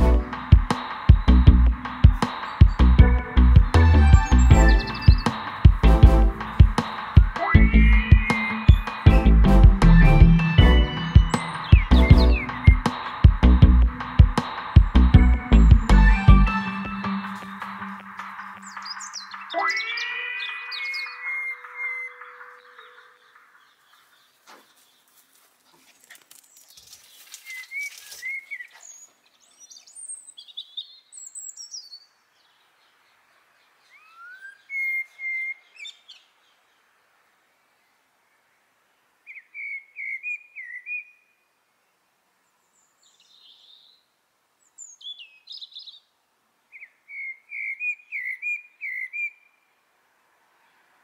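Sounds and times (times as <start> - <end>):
small birds singing: 0.0 - 5.9, 6.5 - 49.8
dog running past rustle: 24.4 - 29.1.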